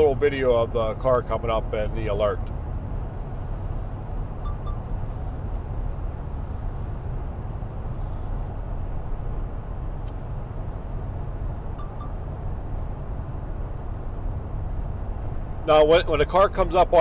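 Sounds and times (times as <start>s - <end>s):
road and engine noise in cab: 0.0s - 17.0s
quick high beeps: 4.4s - 4.9s, 11.8s - 12.2s.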